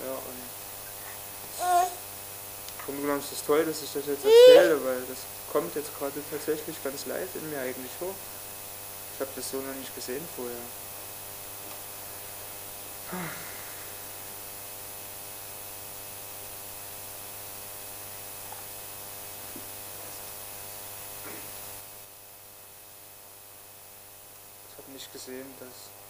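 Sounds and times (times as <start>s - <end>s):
constant hiss: 0.0s - 2.0s, 2.6s - 10.8s
electrical mains hum: 0.0s - 26.0s
faint small noises: 0.7s - 2.1s
short falling voice: 4.2s - 4.8s.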